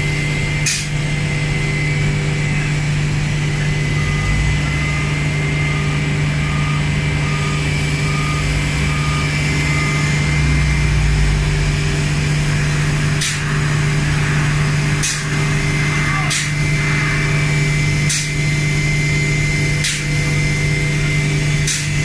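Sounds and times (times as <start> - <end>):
machinery drone: 0.0 - 22.0
warning alarm beeping: 1.6 - 21.8.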